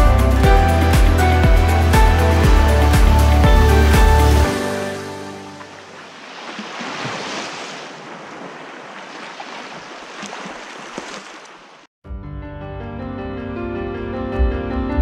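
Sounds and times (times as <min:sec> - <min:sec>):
sea waves washing: 0:01.0 - 0:11.9.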